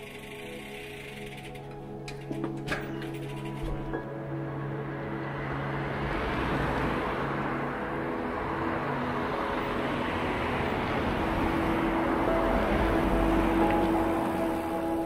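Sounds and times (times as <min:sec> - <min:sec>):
faint music: 0:00.0 - 0:15.0
cars passing: 0:03.2 - 0:15.0.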